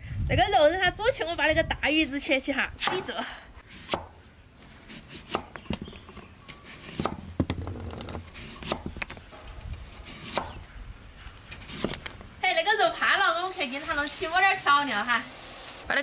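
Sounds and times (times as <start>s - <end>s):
cleaver slicing raw taro: 2.8s - 4.2s, 4.8s - 5.6s, 6.5s - 7.3s, 8.3s - 8.9s, 9.6s - 10.6s.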